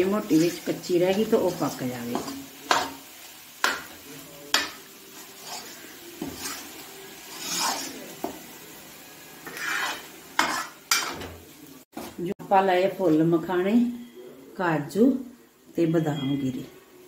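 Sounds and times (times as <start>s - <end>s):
metal spoon scraping a pan: 0.1s - 3.9s, 4.5s - 8.4s, 9.4s - 11.3s.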